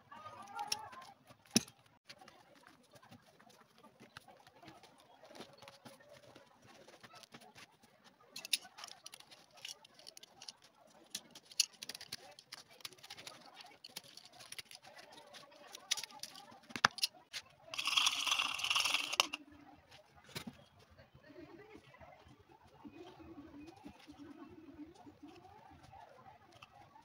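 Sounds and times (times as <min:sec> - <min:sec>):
tools handled on workbench: 0:15.7 - 0:17.1, 0:17.8 - 0:19.4
sponge scraping metal tin: 0:17.8 - 0:19.4.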